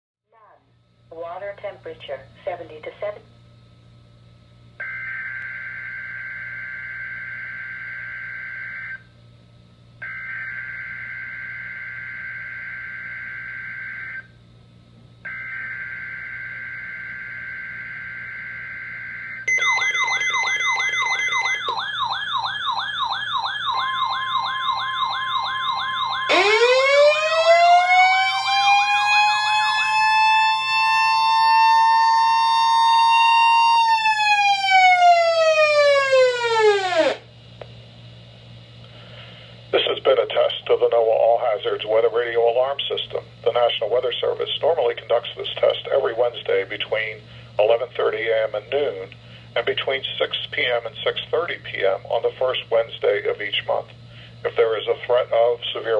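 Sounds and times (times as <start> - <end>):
fast warbling alarm sirens: 4.8 - 9.1, 10.0 - 14.3, 15.3 - 37.3
siren winding up and down: 4.8 - 9.1, 10.0 - 14.4, 15.3 - 37.3
shrill digital data tones: 19.3 - 26.4.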